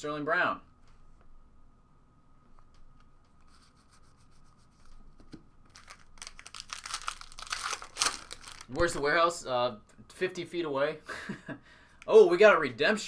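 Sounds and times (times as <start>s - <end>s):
trading cards rubbing and sliding: 3.2s - 5.4s
foil pack tearing and crinkling: 5.7s - 9.0s.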